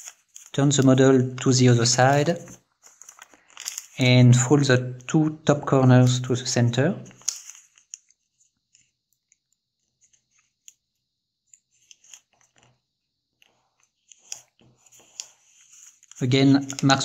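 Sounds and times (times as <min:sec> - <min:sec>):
paper rustling and crackling: 0:00.0 - 0:04.0, 0:07.1 - 0:08.9, 0:13.4 - 0:17.0.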